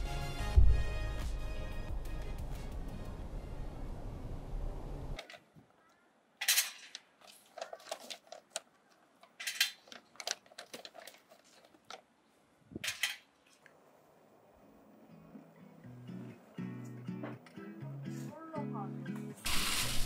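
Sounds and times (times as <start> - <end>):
bag rustling: 7.2 - 12.0.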